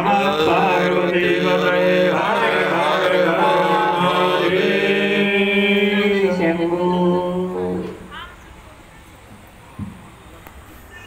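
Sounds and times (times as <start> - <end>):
voices chanting mantra: 0.0 - 8.2.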